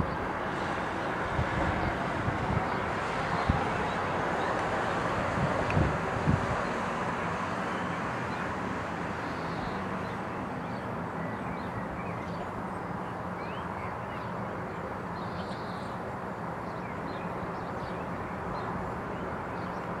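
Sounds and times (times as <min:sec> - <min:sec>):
distant helicopter drone: 0:00.0 - 0:20.0
small birds chirping: 0:09.1 - 0:16.0.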